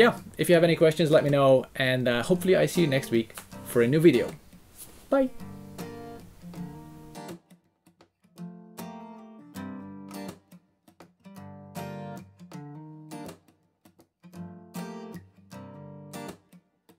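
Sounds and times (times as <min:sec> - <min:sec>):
strummed acoustic guitar chords: 0:02.2 - 0:04.6, 0:05.3 - 0:13.6, 0:14.3 - 0:16.6.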